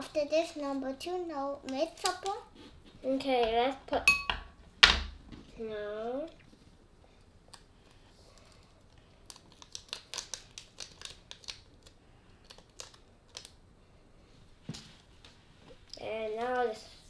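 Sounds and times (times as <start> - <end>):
powder sachet crinkling: 7.5 - 13.6.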